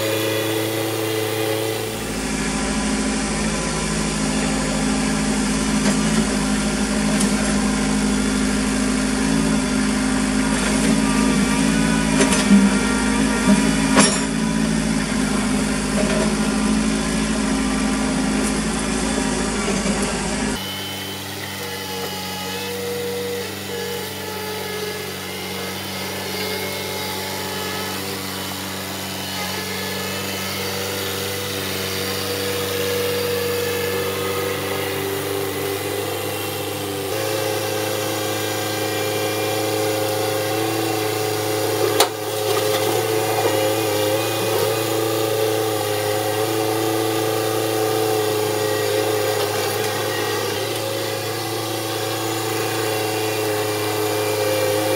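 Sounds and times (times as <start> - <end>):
diesel tractor engine running: 0.0 - 20.6.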